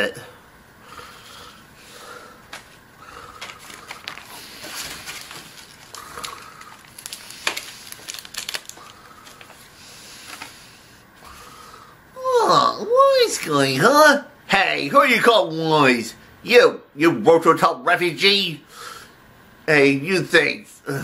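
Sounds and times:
paper rustling: 2.5 - 10.6.

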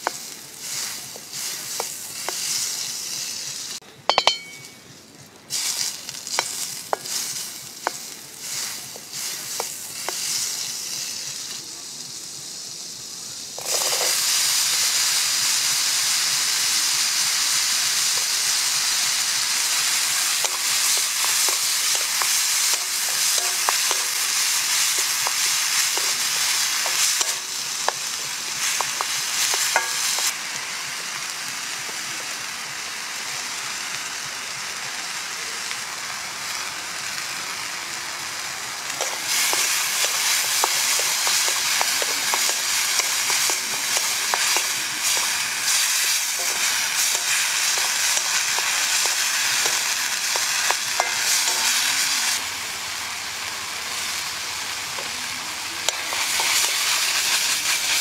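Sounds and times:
butter sizzling in a pan: 0.0 - 4.8, 5.5 - 58.0
onion and garlic frying: 0.0 - 58.0
sharp clinks: 4.1 - 4.8.

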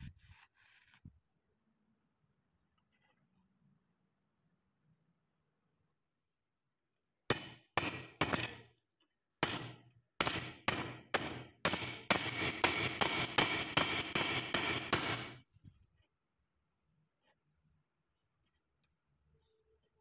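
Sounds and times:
hammer ringing on saw blade: 9.4 - 15.4.

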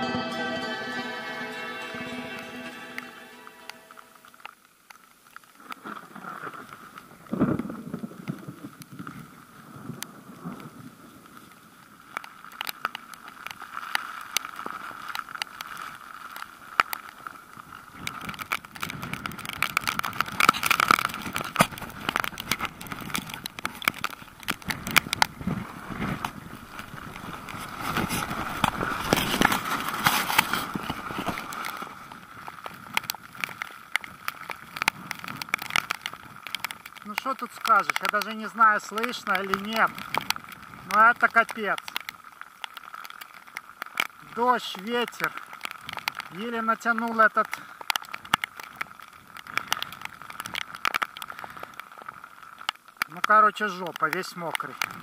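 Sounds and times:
rain crackling on microphone: 0.0 - 55.0
gusty wind buffeting microphone: 18.0 - 31.6.

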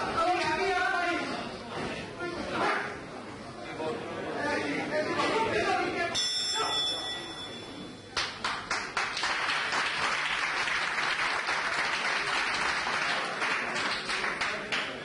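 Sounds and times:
audience applauding: 8.2 - 15.0.

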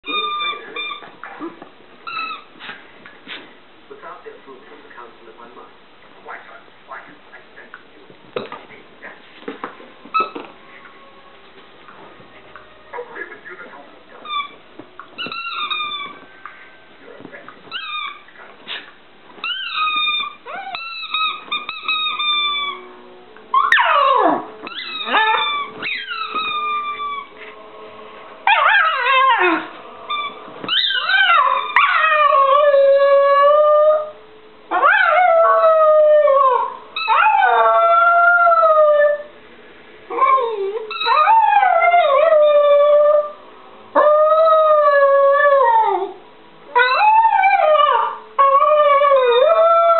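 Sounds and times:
dog howling and yipping: 0.0 - 1.4, 17.7 - 18.3, 19.4 - 22.8, 23.5 - 27.3, 28.4 - 39.3, 40.1 - 43.4, 44.0 - 49.9.

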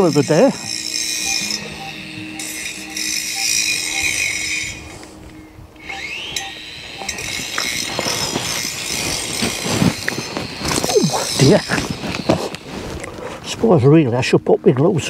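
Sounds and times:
metal detector short beeps: 0.6 - 5.0, 5.8 - 8.5.

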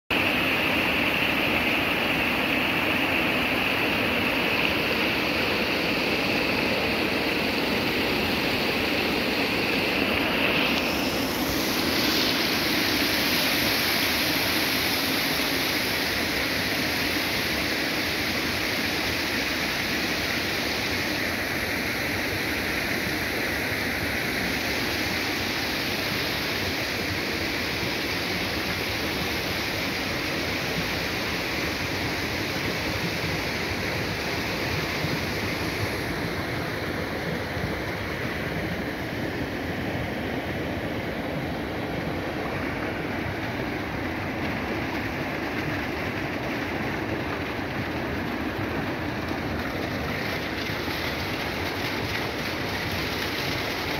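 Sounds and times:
water pouring into a tank: 43.8 - 53.9.

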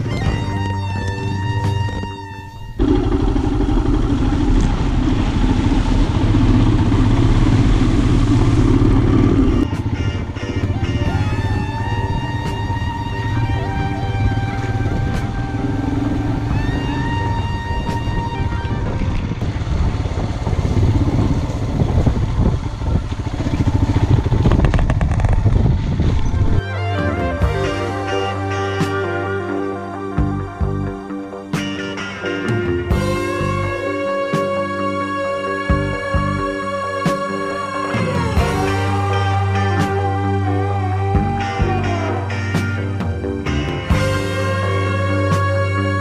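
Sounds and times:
motorcycle engine running: 0.0 - 46.0
wheel splashing through water: 2.8 - 17.3.

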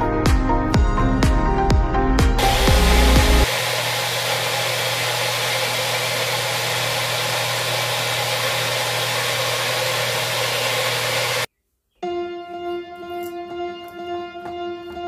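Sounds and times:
blender motor whirring: 2.4 - 11.5.

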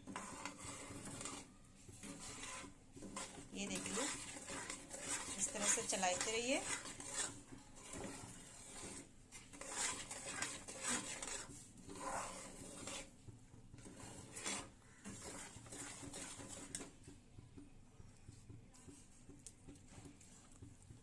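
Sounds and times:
metal spatula scraping metal pan: 0.0 - 13.2, 13.8 - 16.9.

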